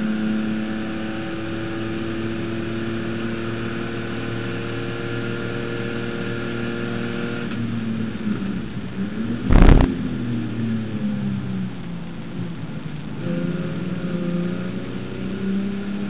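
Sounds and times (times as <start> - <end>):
race car engine at high revs: 0.0 - 11.0, 13.1 - 16.0
loud thump: 9.5 - 9.9.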